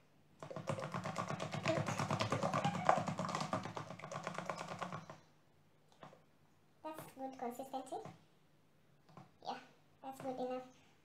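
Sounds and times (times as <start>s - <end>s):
spoon beating batter in plastic bowl: 0.4s - 5.3s.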